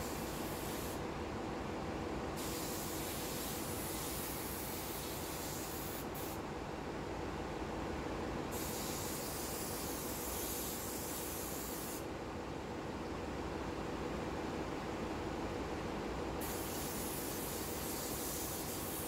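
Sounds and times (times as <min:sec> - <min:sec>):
high hiss: 0:02.4 - 0:06.4, 0:08.5 - 0:12.1, 0:16.4 - 0:19.0.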